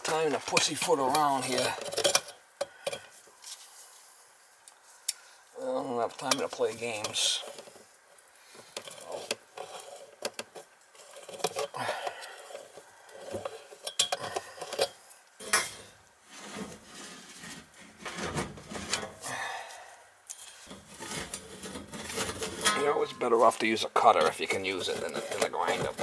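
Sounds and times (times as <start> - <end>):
pipe cutter clicking and scraping: 24.2 - 26.0.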